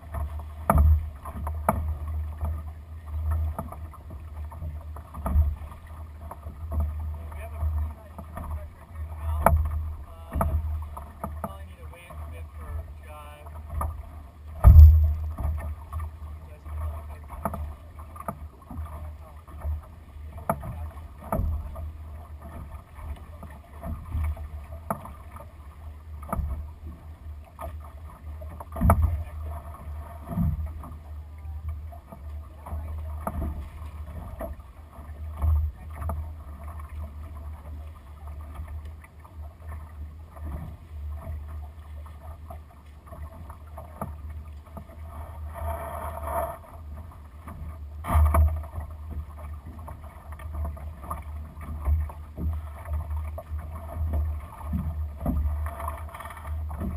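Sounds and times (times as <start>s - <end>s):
water washing along hull: 0.0s - 56.9s
short knocks: 14.6s - 15.6s.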